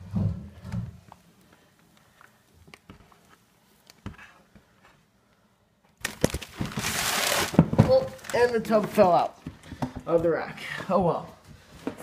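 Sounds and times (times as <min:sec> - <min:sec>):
plastic tub clattering as it falls: 0:06.3 - 0:09.1.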